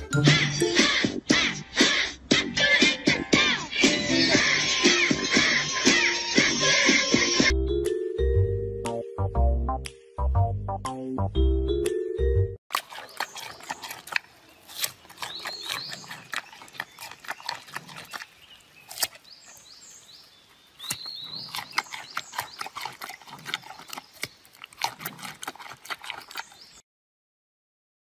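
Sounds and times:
panda crunching a carrot: 12.7 - 19.6, 20.8 - 26.7.

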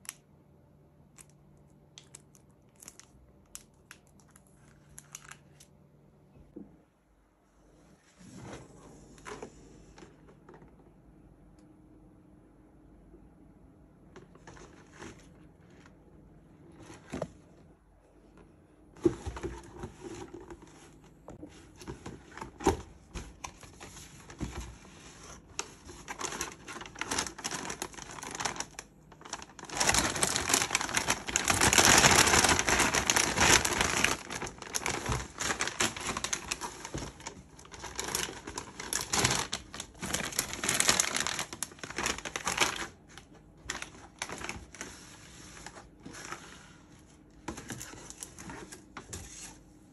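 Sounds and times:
packaging crinkling and tearing: 2.0 - 5.7, 25.4 - 44.9.

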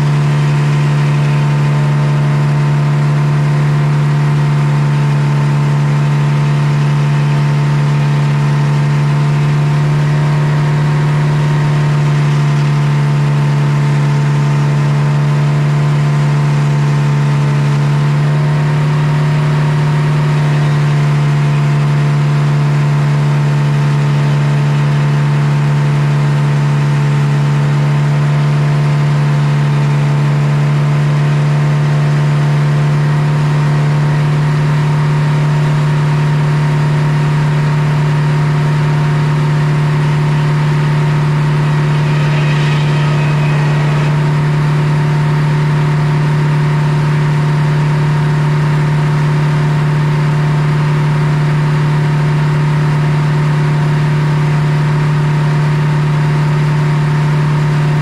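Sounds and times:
circular saw droning: 0.0 - 23.5, 37.6 - 54.6.

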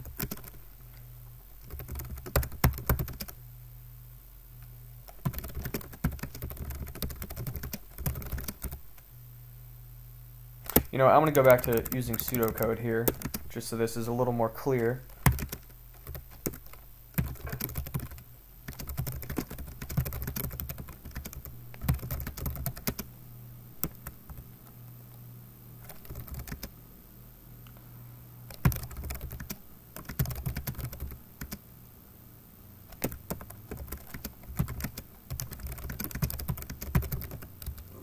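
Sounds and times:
typing on a keyboard: 0.1 - 0.6, 1.6 - 3.4, 5.1 - 8.8, 10.7 - 13.4, 15.2 - 23.1, 25.8 - 26.7, 28.5 - 31.6, 32.9 - 37.9.

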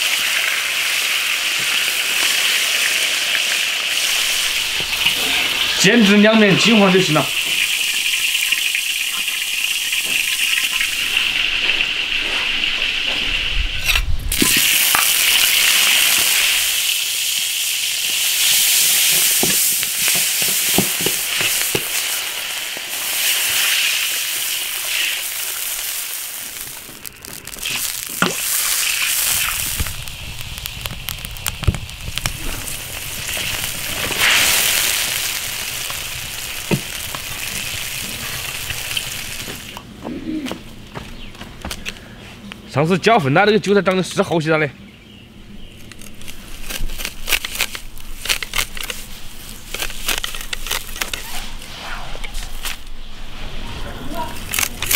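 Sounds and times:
oil sizzling in a wok: 0.0 - 5.9, 7.3 - 39.8
sharp pops: 18.9 - 23.8, 24.4 - 39.9.

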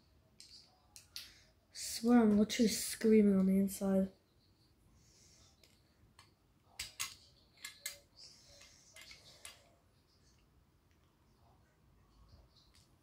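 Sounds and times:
plastic toy parts clicking: 5.6 - 9.6.

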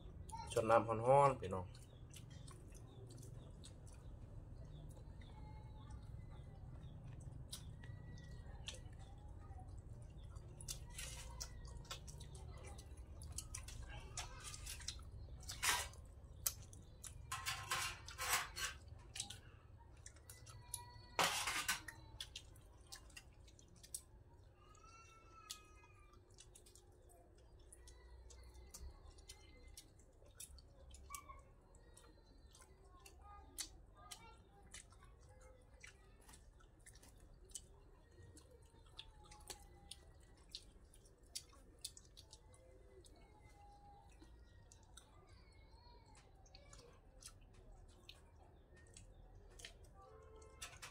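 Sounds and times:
faint bird chirps: 1.4 - 15.6, 42.6 - 46.8
chewing and lip-smacking: 1.6 - 17.3, 18.8 - 21.2, 21.8 - 24.6, 25.5 - 50.9.

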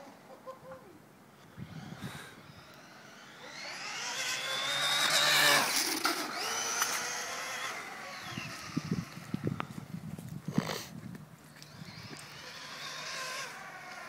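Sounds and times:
electric motor whining: 1.5 - 10.1, 11.5 - 14.0.

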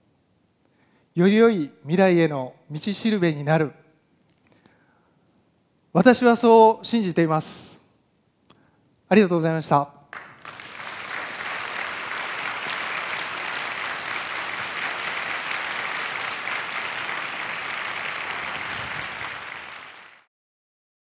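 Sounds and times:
audience applauding: 10.1 - 20.3.

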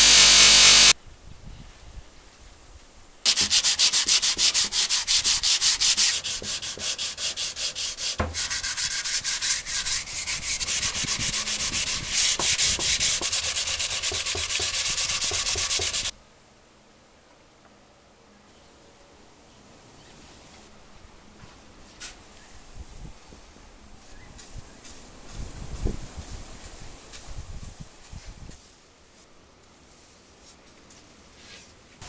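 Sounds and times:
sandpaper rubbing on wood: 3.3 - 16.1.

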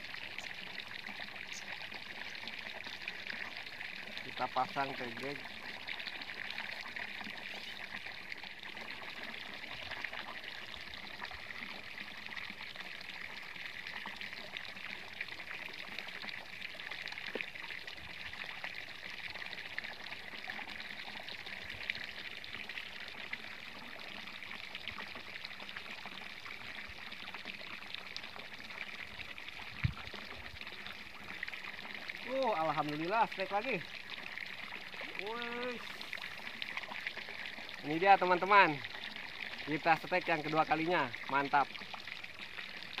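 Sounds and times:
water pouring from pipe into stream: 0.0 - 43.0.

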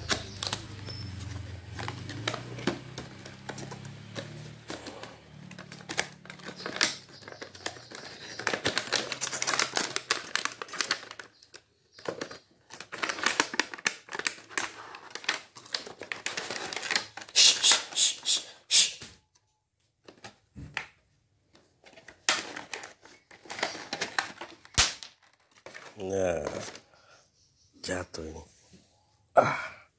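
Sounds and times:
cardboard box and paper crackling: 0.0 - 17.4, 21.6 - 26.8.

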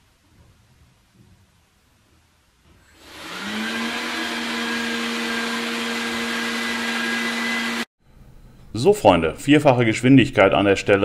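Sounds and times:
robot vacuum motor whining: 2.9 - 7.9.

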